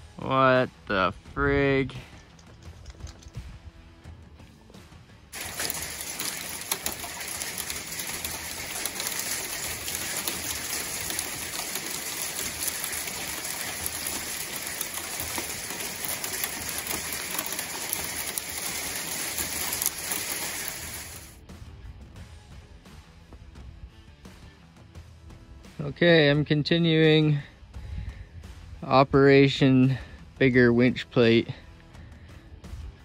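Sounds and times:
ice pellets ticking on metal: 0:01.9 - 0:03.4, 0:05.4 - 0:21.4.

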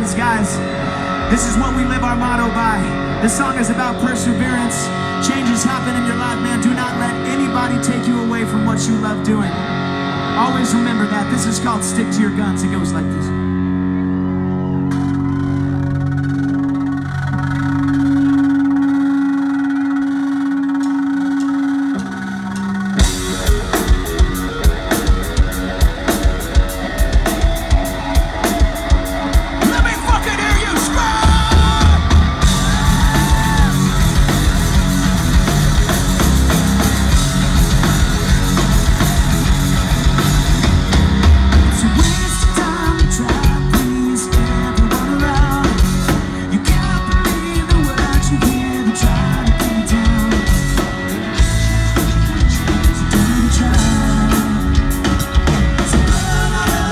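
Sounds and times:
bass guitar: 0:00.0 - 0:56.9
electric guitar: 0:00.0 - 0:56.9
drum kit: 0:14.8 - 0:56.9
person singing: 0:29.6 - 0:34.0, 0:41.7 - 0:51.5, 0:52.3 - 0:56.9.

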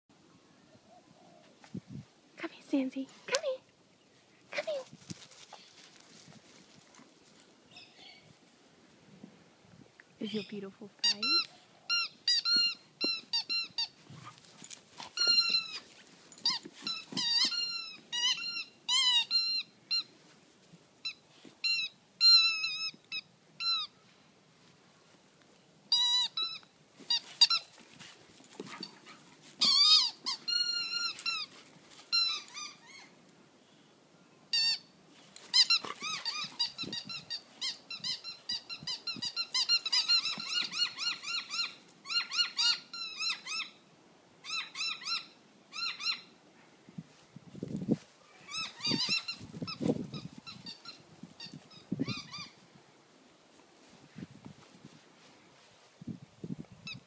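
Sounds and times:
squeaky dog toy squeaking: 0:10.3 - 0:14.0, 0:15.1 - 0:20.1, 0:21.0 - 0:23.9, 0:25.9 - 0:27.7, 0:29.6 - 0:31.5, 0:32.1 - 0:33.0, 0:34.5 - 0:43.8, 0:44.4 - 0:46.3, 0:48.5 - 0:52.6.

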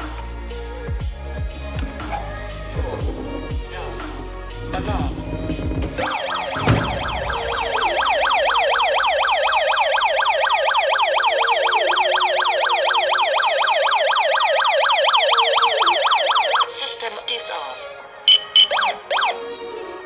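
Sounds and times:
electronic alarm siren wailing: 0:05.9 - 0:16.7, 0:18.3 - 0:19.4.

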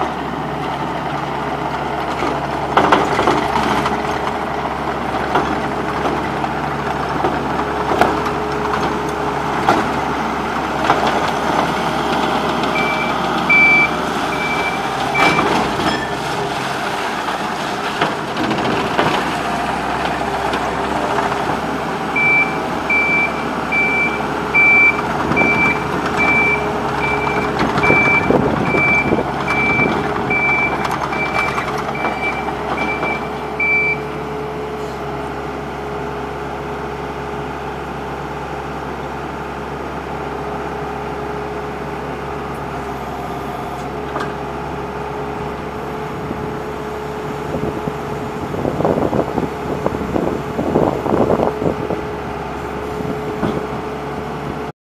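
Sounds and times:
loader diesel engine running: 0:00.0 - 0:54.7
reversing alarm beeps: 0:12.8 - 0:16.1, 0:22.2 - 0:34.2.

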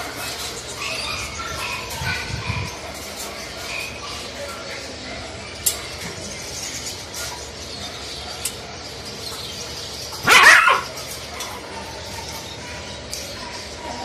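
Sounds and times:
dog barking: 0:10.2 - 0:11.9.

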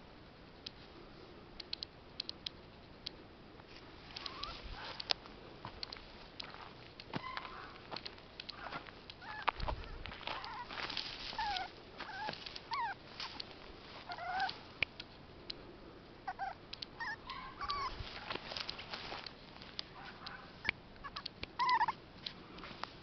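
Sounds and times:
light clicks and rustles: 0:01.6 - 0:15.6, 0:17.6 - 0:20.4
squeaky animal calls: 0:04.2 - 0:04.6, 0:08.5 - 0:10.8, 0:11.4 - 0:13.0, 0:14.1 - 0:14.6, 0:16.3 - 0:18.0, 0:20.6 - 0:22.0.

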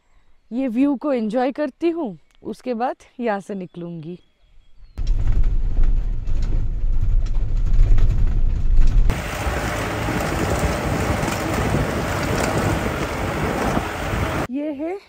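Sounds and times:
vehicle engine and road rumble: 0:05.0 - 0:14.5
wind and tyre noise: 0:05.0 - 0:14.5.

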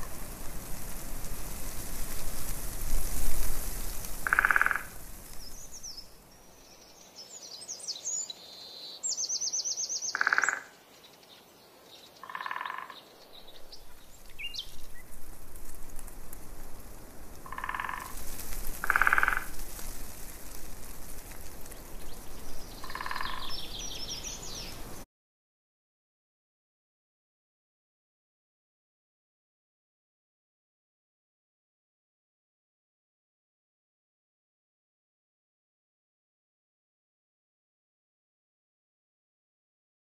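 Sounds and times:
birds chirping and trilling: 0:03.7 - 0:15.2, 0:21.6 - 0:25.0
frogs croaking: 0:04.0 - 0:05.1, 0:10.0 - 0:10.8, 0:12.2 - 0:13.1, 0:17.4 - 0:19.9, 0:22.7 - 0:24.0.

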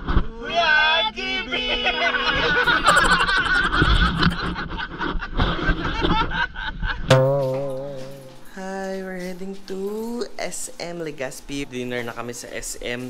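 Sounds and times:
people laughing: 0:01.4 - 0:06.9
held musical note: 0:07.1 - 0:08.8.

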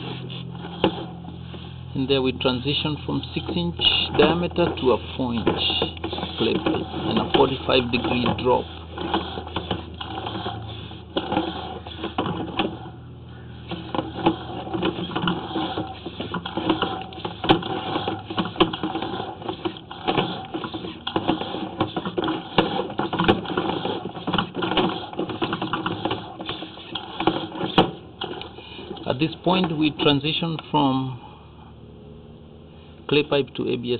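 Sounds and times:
low hum: 0:00.0 - 0:33.6
push cable clicking and rattling: 0:13.6 - 0:29.8.

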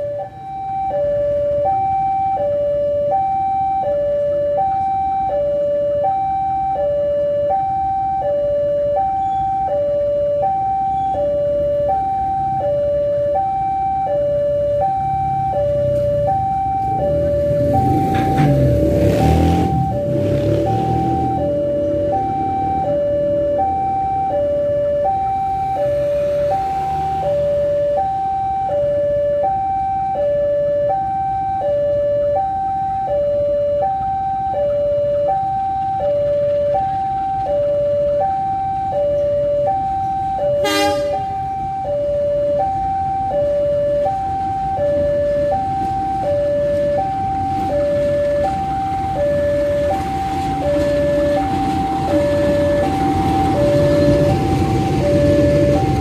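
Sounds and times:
diesel locomotive rumble: 0:13.5 - 0:31.4, 0:32.2 - 0:56.0.

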